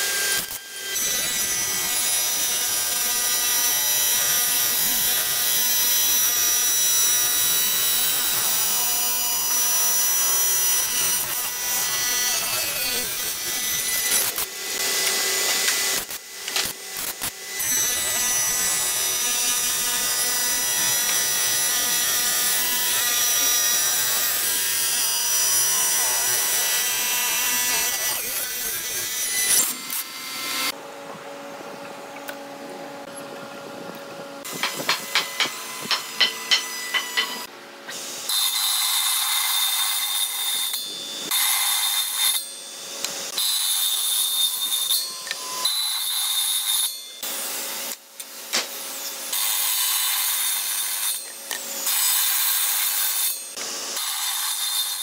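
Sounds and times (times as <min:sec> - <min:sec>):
circular saw cutting wood: 0:00.0 - 0:30.8, 0:34.2 - 0:55.0
spindle machine cutting wood: 0:00.0 - 0:30.8, 0:48.6 - 0:55.0.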